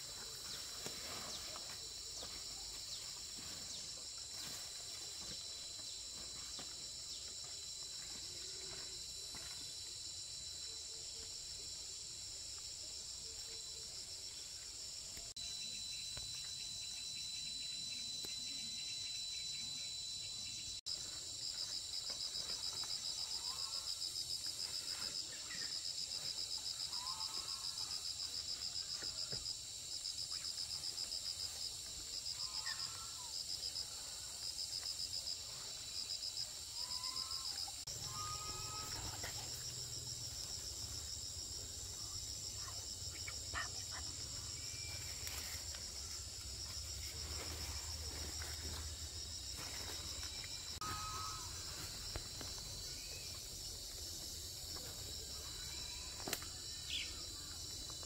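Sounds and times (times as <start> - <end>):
insects chirping chorus: 0.0 - 58.0
pulsed cricket trill: 14.9 - 22.3, 25.5 - 58.0.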